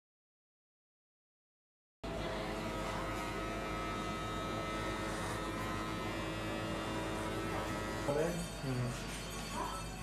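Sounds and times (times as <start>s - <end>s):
electric hair clipper buzzing: 2.1s - 9.3s.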